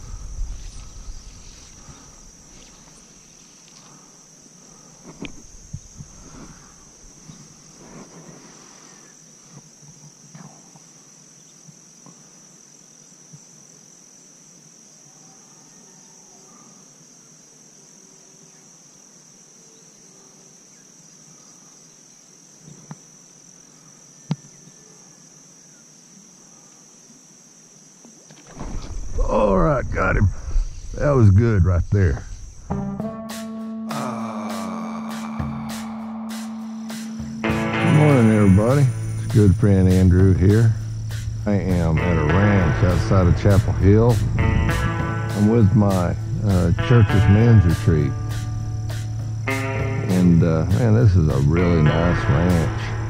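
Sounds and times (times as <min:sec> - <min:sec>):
crickets chirping: 0:00.0 - 0:53.0.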